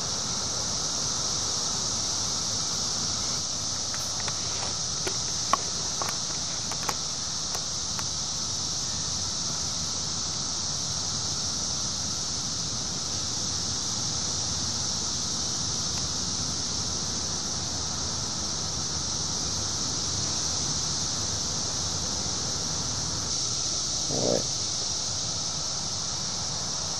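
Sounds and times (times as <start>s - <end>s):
cicadas droning: 0.0s - 26.9s
small clicks: 3.9s - 8.1s.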